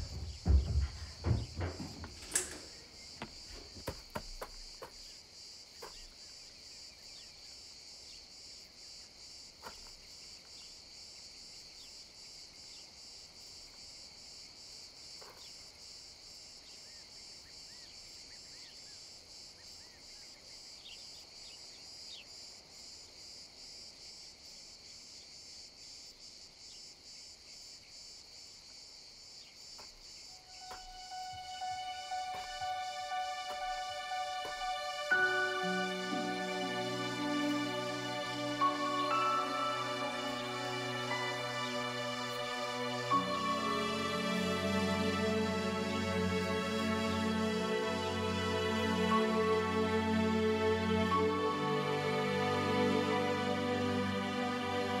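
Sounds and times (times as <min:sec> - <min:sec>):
soft knocks: 0:00.0 - 0:04.9
insects chirping: 0:00.0 - 0:55.0.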